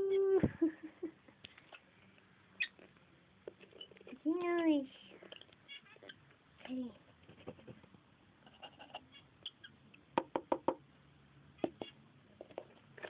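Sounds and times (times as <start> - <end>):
bird beak knocking on wood: 10.2 - 10.8.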